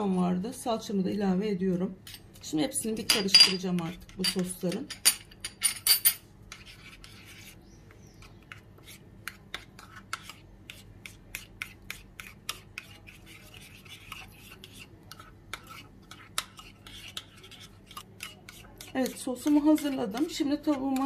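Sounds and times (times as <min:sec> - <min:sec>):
metal spoon scraping a ceramic bowl: 0:03.0 - 0:07.6, 0:08.2 - 0:21.0
spoon clinking on bowl: 0:03.1 - 0:03.6.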